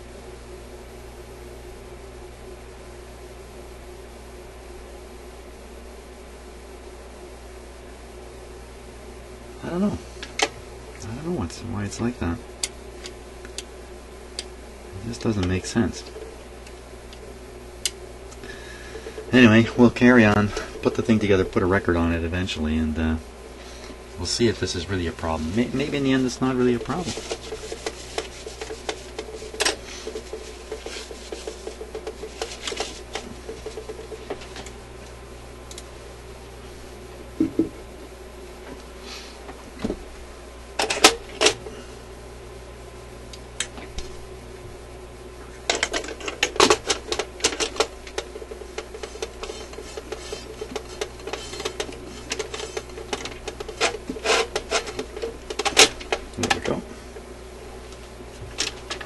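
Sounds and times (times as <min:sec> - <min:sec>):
record player parts clicking and scraping: 0:15.1 - 0:17.3, 0:17.9 - 0:21.9, 0:24.4 - 0:34.8, 0:40.8 - 0:41.6, 0:45.5 - 0:57.3, 0:57.9 - 0:59.0.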